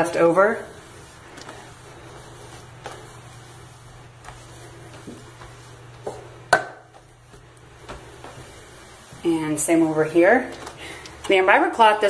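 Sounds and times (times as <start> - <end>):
cloth rubbing faucet: 0.0 - 10.0
steady low hum: 0.0 - 11.9.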